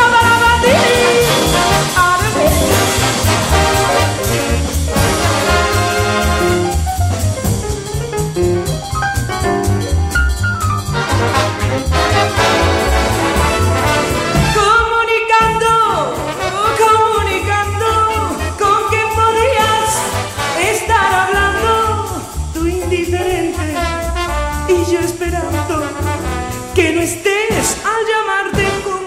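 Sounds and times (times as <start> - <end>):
woman singing wordlessly: 0.0 - 3.0, 14.6 - 24.0, 24.7 - 26.1, 26.7 - 29.0
big-band swing music: 0.0 - 29.0.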